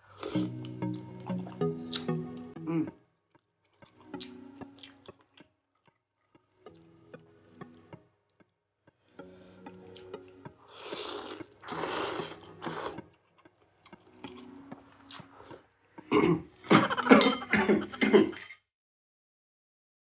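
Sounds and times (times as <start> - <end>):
loud noodle slurping: 10.7 - 13.1
person coughing: 16.1 - 18.5.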